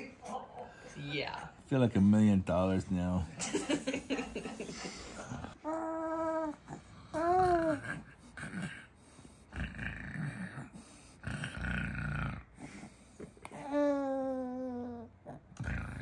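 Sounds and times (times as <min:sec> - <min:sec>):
baby cooing: 0:05.6 - 0:08.0, 0:13.5 - 0:15.4
baby breathy vocal sounds: 0:12.6 - 0:15.4.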